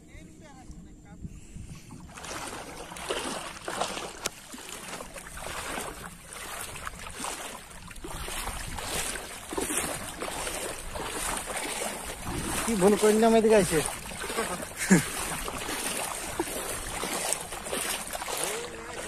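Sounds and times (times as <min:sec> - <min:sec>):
water sloshing from wading: 0:00.0 - 0:19.0.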